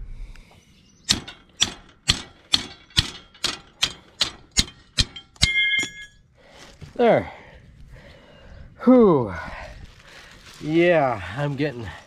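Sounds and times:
hammer striking steel: 1.1 - 6.2
ringing metallic clang: 1.1 - 6.2.

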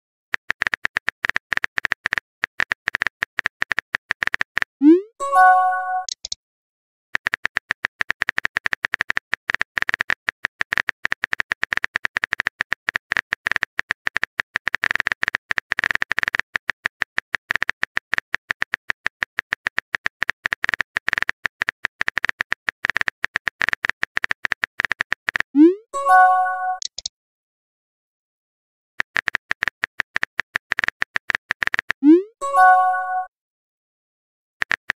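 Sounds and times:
phone keyboard clicks: 0.4 - 4.7, 6.0 - 6.4, 7.2 - 25.5, 26.8 - 27.1, 29.0 - 32.0, 34.6 - 34.9.

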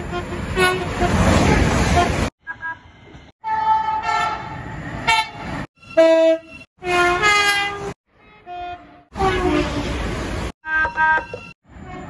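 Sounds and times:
train horn blasts: 3.4 - 10.0.

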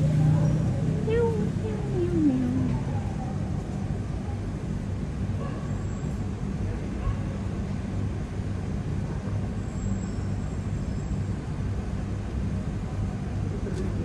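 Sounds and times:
low urban mechanical hum: 0.0 - 14.0.

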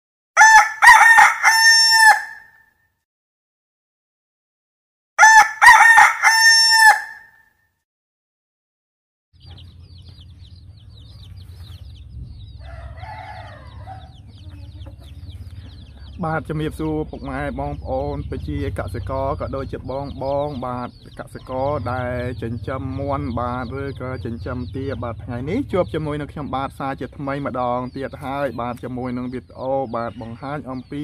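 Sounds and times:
rooster crowing: 0.4 - 2.6, 5.2 - 7.5, 12.6 - 14.3
low hum: 9.4 - 28.1
chicks peeping: 9.4 - 31.0.

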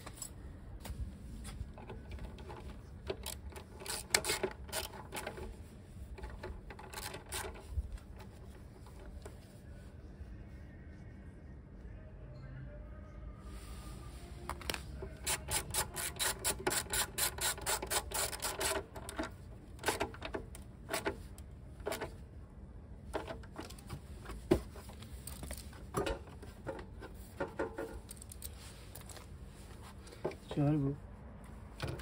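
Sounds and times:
ratchet wrench clicking: 3.1 - 5.4, 15.2 - 21.2.

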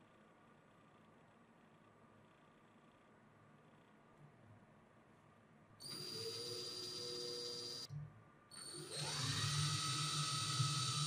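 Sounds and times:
cordless drill motor whirring: 5.8 - 7.9, 8.6 - 11.0.

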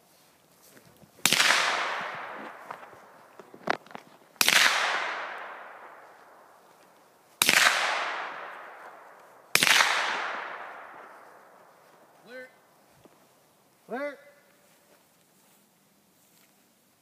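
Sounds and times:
rifle shots echoing: 1.2 - 3.4, 4.4 - 6.6, 7.4 - 11.7.

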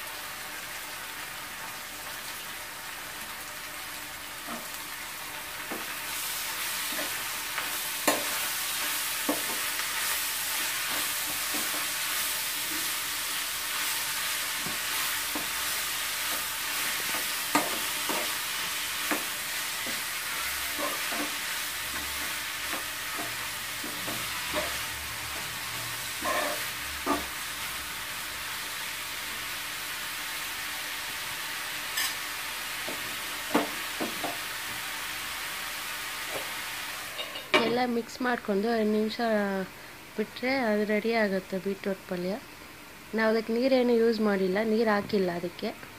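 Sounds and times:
vegetables sizzling in a pan: 0.0 - 45.9
steel spoon scraping a pan: 20.3 - 22.2, 24.1 - 24.9, 25.8 - 27.3, 32.0 - 32.2, 37.1 - 37.7.

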